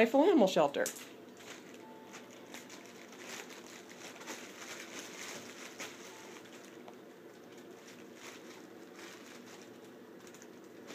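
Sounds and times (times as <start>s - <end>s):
fabric rustling: 1.4s - 6.8s, 7.4s - 10.0s.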